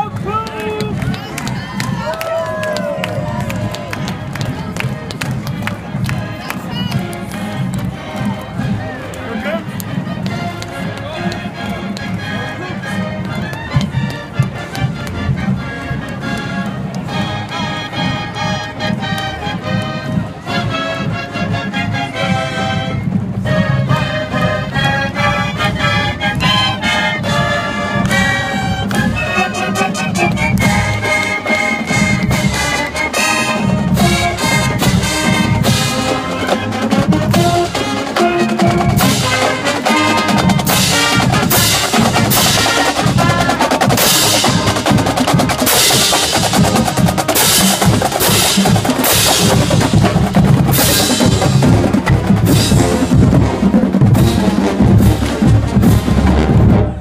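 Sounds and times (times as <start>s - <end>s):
horns and saxophones: 0.0s - 57.0s
marching band playing: 0.0s - 57.0s
snare and bass drums: 25.7s - 57.0s.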